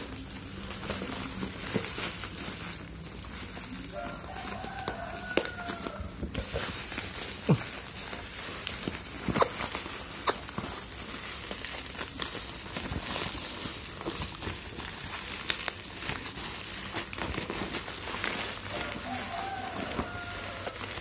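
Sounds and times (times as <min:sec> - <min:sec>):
bubble wrap crinkling and crackling: 0:00.0 - 0:21.0.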